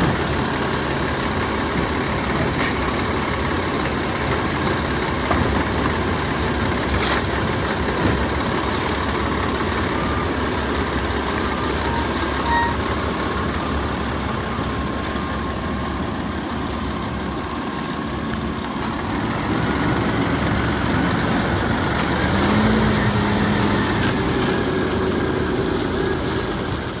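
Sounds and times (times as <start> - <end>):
garbage truck engine revving: 0.0 - 27.0.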